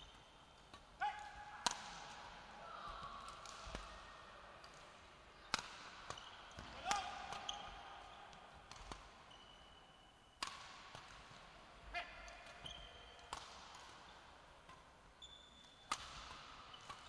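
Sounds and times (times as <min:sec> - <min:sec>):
rackets striking shuttlecock: 0:00.6 - 0:02.2, 0:03.2 - 0:04.0, 0:05.4 - 0:07.7, 0:08.6 - 0:09.6, 0:10.4 - 0:11.3, 0:12.2 - 0:14.9, 0:15.6 - 0:17.0
shoes squeaking on court: 0:09.3 - 0:09.7, 0:15.2 - 0:15.8.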